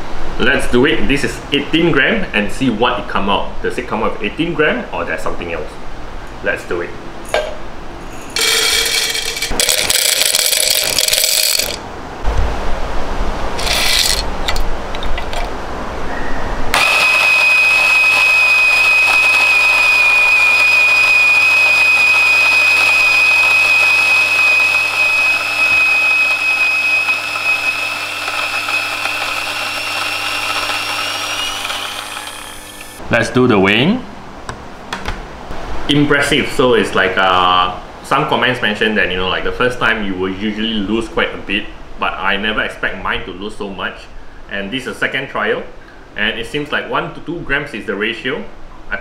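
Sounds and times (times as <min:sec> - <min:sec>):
coffee beans rattling into hopper: 0:08.4 - 0:11.8, 0:13.6 - 0:14.3
grinder motor whining: 0:08.4 - 0:11.8, 0:13.6 - 0:14.2, 0:16.7 - 0:33.0.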